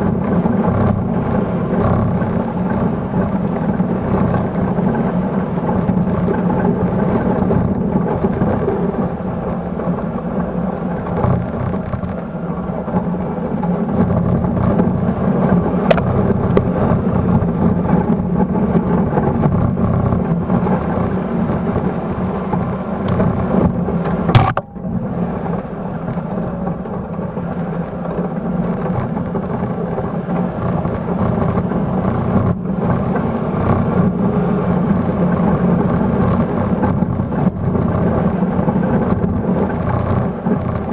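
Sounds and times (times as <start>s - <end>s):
snow scraping over plow blade: 0.0s - 40.9s
truck engine running under load: 0.0s - 40.9s
sharp knock: 24.3s - 24.8s.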